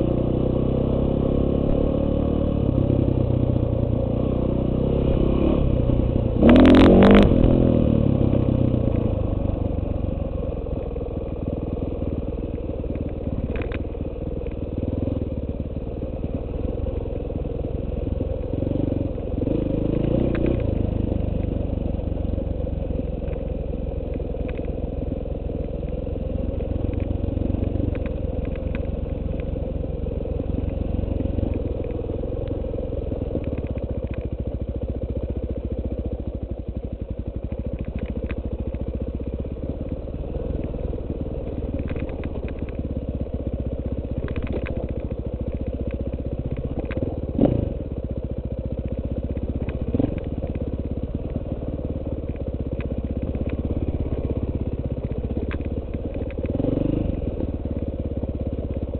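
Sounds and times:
dirt bike engine running: 0.0s - 58.9s
small clicks and clatter: 12.8s - 14.6s, 20.2s - 21.5s, 24.1s - 24.8s, 26.8s - 29.5s, 30.6s - 32.6s, 33.3s - 34.4s, 37.4s - 39.0s, 41.4s - 42.9s, 44.1s - 47.2s, 48.8s - 51.5s, 52.2s - 56.6s.

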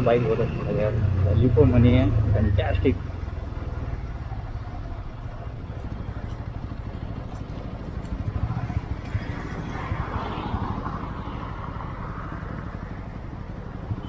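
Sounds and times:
motorcycle engine at low revs: 0.0s - 9.9s.

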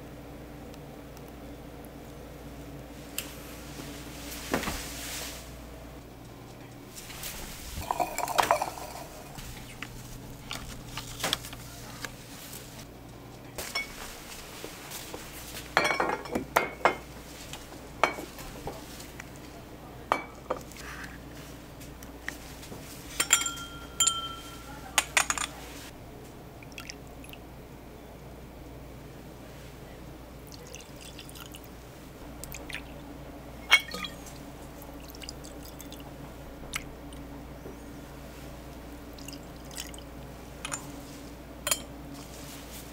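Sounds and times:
glasses clinking: 7.8s - 9.4s, 15.8s - 17.0s, 23.1s - 25.6s, 33.6s - 34.4s, 40.6s - 41.0s, 41.7s - 41.9s
glass ringing: 23.2s - 25.4s, 33.6s - 34.3s.

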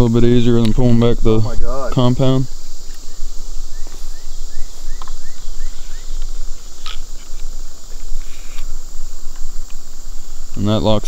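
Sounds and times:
crickets chirping: 0.0s - 11.0s
crossbow clicks: 6.2s - 8.7s.

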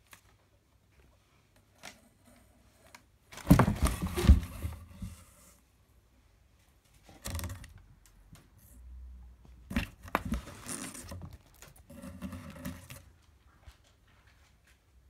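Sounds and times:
cat scratching cardboard box: 9.7s - 13.1s.

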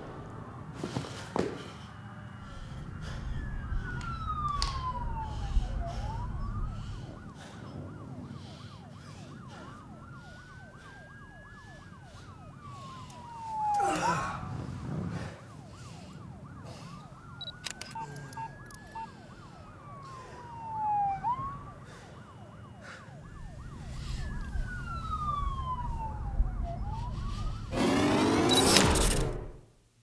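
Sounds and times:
slow wailing siren: 1.9s - 28.8s
fast yelping siren: 2.0s - 14.7s, 15.4s - 28.7s
short electronic beeps: 17.4s - 19.0s
low rumble: 23.3s - 27.8s.

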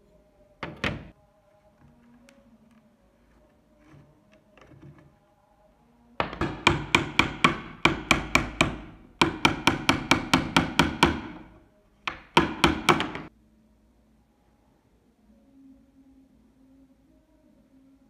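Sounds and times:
hammer tapping metal punch: 6.2s - 11.5s.

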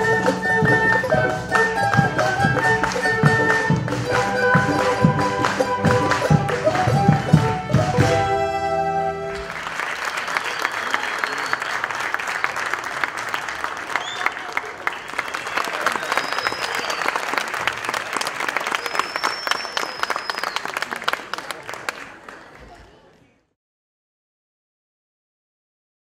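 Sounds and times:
audience applauding: 0.0s - 8.2s, 9.2s - 23.4s
high whistles: 10.3s - 11.9s, 13.9s - 17.4s, 18.6s - 20.8s.

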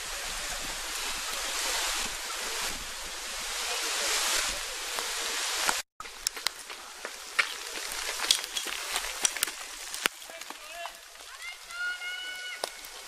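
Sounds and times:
wind rushing over microphone: 0.0s - 5.8s.

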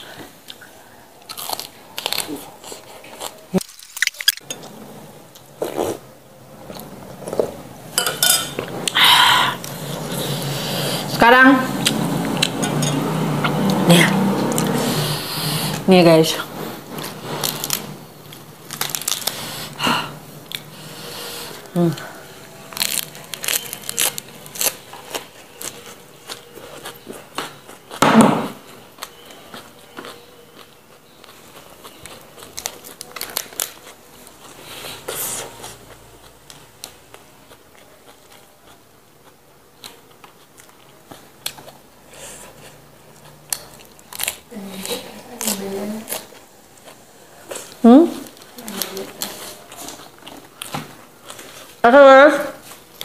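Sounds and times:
chewing lettuce: 1.2s - 4.4s, 16.5s - 28.0s, 28.9s - 51.8s.

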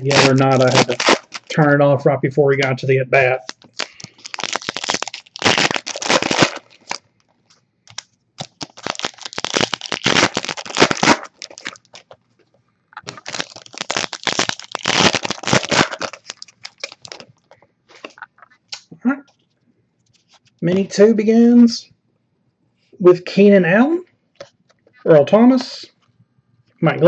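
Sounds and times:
foil wrapper crinkling: 0.0s - 1.7s, 3.4s - 12.2s, 13.0s - 18.5s.

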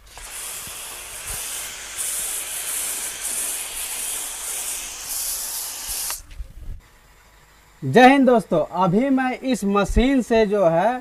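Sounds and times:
pressure washer spraying: 0.0s - 6.3s.

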